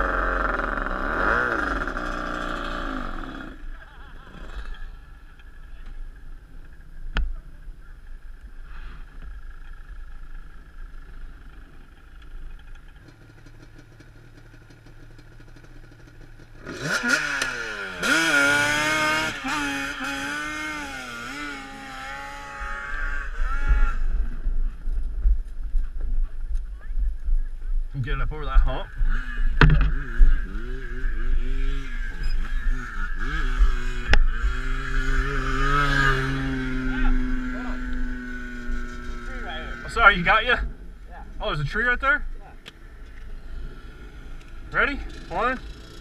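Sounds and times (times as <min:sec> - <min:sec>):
quad engine revving: 0:00.0 - 0:04.9, 0:13.1 - 0:24.5, 0:28.9 - 0:40.3, 0:43.4 - 0:46.0.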